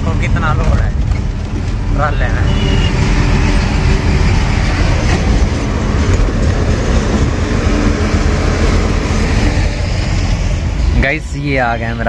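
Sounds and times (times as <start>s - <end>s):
wind noise: 0.0s - 11.2s
truck diesel engine rumble: 0.0s - 12.0s.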